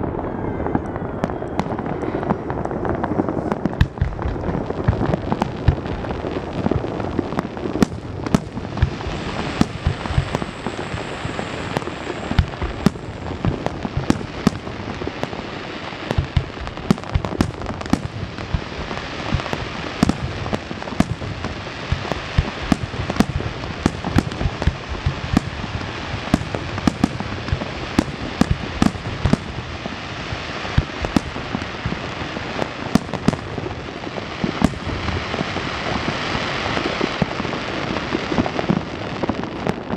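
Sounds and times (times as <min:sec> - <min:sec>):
firework crackling: 0:00.0 - 0:39.9
firework shells bursting: 0:03.4 - 0:06.2, 0:07.8 - 0:15.4, 0:16.0 - 0:29.9, 0:30.7 - 0:32.2.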